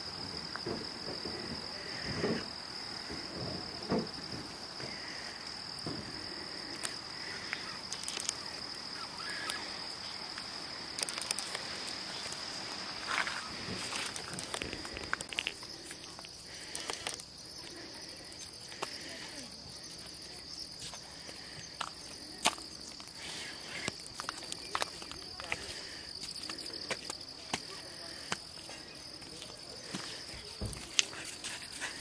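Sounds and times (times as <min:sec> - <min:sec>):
insects chirring: 0:00.0 - 0:32.0
footsteps on gravel: 0:11.2 - 0:17.1.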